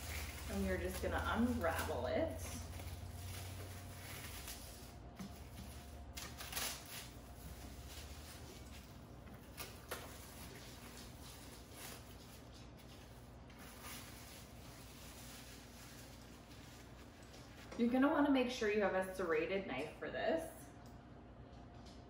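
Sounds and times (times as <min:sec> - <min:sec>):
cling wrap crinkling: 0:00.0 - 0:18.0.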